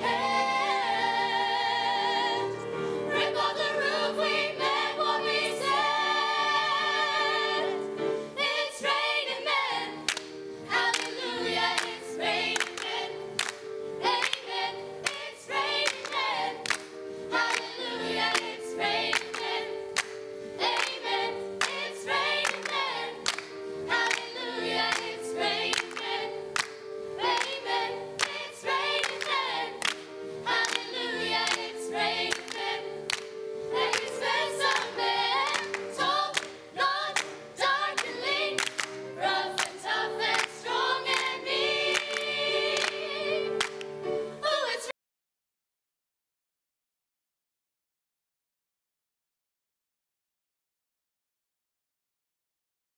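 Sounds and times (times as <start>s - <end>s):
girls' choir singing in harmony: 0.0s - 44.9s
hand claps: 10.1s - 11.2s, 11.8s - 18.5s, 19.1s - 21.0s, 21.6s - 23.5s, 24.1s - 24.3s, 24.9s - 25.1s, 25.7s - 26.8s, 27.4s - 27.6s, 29.0s - 30.9s, 31.5s - 31.7s, 32.3s - 34.9s, 35.5s - 36.6s, 37.2s - 37.4s, 38.0s - 39.0s, 39.6s - 43.0s, 43.6s - 44.0s.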